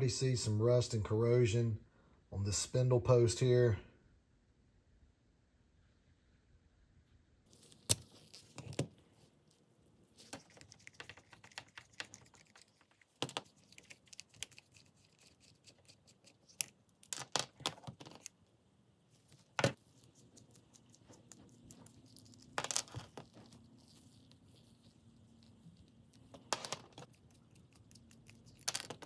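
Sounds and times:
small metal parts clicking and rattling: 0:26.1 - 0:29.0.

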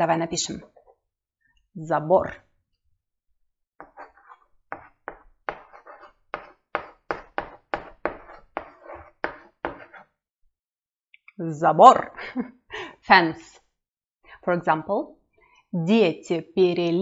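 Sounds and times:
chalk writing on blackboard: 0:03.8 - 0:10.1.

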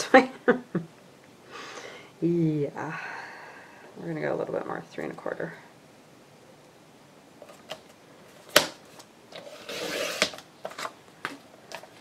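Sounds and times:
paper scraping: 0:09.3 - 0:10.9.

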